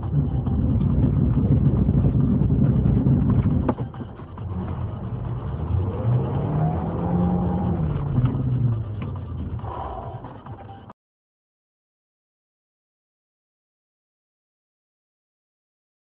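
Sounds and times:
car engine: 0:00.0 - 0:10.9
road noise inside car: 0:00.0 - 0:10.9.

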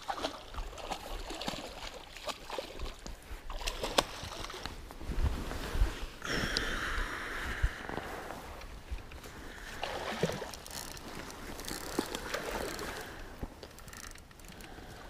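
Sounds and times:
fish splashing in water: 0:00.0 - 0:04.6.

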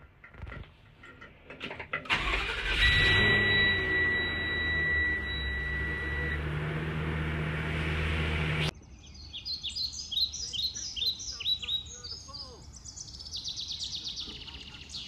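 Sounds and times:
van engine idling: 0:02.0 - 0:08.7
songbird chirping: 0:02.2 - 0:07.3, 0:08.5 - 0:15.0
high electronic warning tone: 0:02.4 - 0:07.4.

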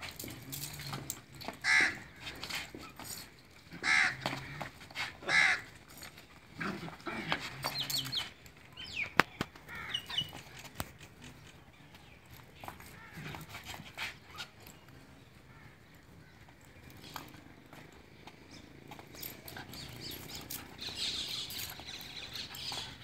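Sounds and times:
crow cawing: 0:01.6 - 0:02.1, 0:03.8 - 0:04.7, 0:05.3 - 0:05.7
small birds chirping: 0:07.6 - 0:23.0.

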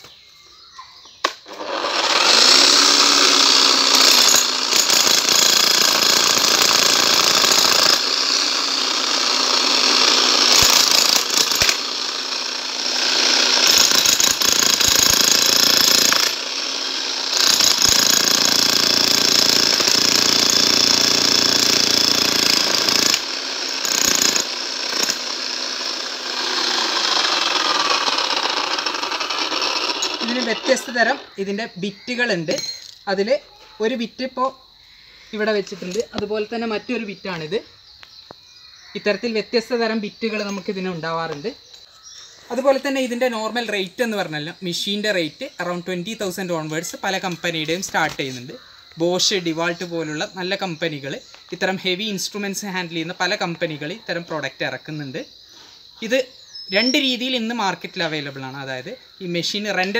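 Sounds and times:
demolition hammer hammering rock: 0:17.4 - 0:30.2.

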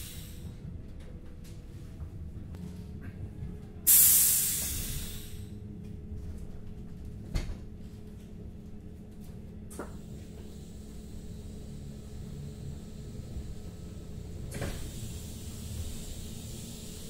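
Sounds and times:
train door air hiss: 0:00.0 - 0:00.4, 0:03.9 - 0:05.5, 0:12.6 - 0:17.0
standing train rumble: 0:00.0 - 0:17.0.

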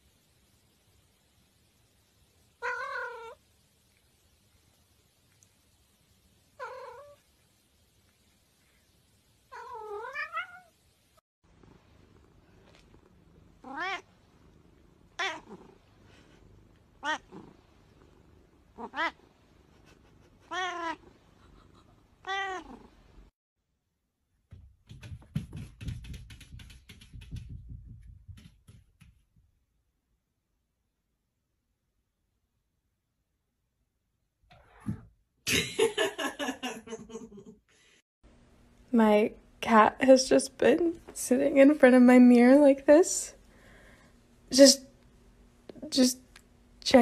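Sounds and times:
cat meowing: 0:02.6 - 0:03.4, 0:06.6 - 0:07.2, 0:09.5 - 0:10.7, 0:13.6 - 0:14.1, 0:15.2 - 0:15.6, 0:17.0 - 0:17.4, 0:18.8 - 0:19.2, 0:20.5 - 0:21.1, 0:22.2 - 0:22.8
rapid clicking and rustling: 0:24.5 - 0:29.4.

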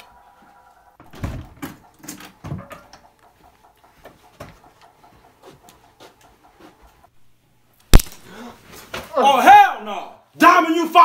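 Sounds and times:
sharp knocks and thumps: 0:01.0 - 0:05.6.

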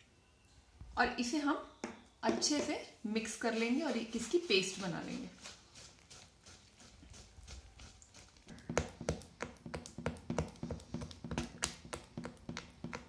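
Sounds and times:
spoon scraping thick paste: 0:03.6 - 0:13.0.

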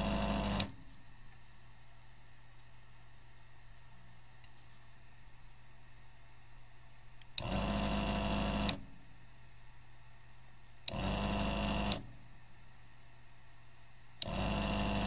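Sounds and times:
desoldering vacuum pump running: 0:00.0 - 0:00.8, 0:07.4 - 0:08.8, 0:10.9 - 0:12.0, 0:14.2 - 0:15.0.

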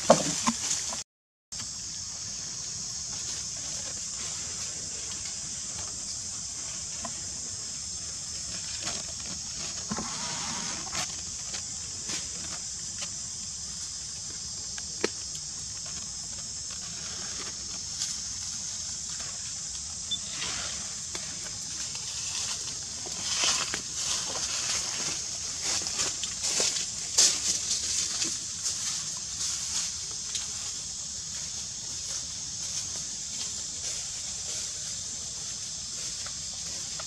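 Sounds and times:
high-pitched insect drone: 0:01.6 - 0:37.0.

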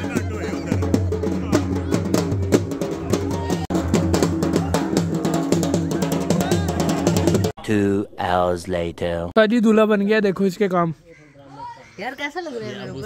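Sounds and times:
large drum beaten rapidly: 0:00.0 - 0:07.6.

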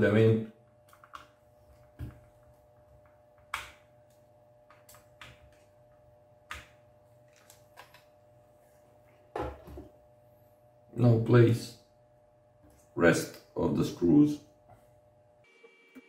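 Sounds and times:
faint steady hum: 0:00.0 - 0:16.0.

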